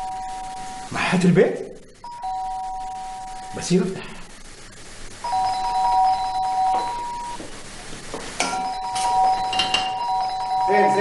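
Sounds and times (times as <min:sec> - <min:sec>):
electronic doorbell chiming: 0:02.0 - 0:03.3, 0:05.2 - 0:07.4, 0:08.5 - 0:11.0.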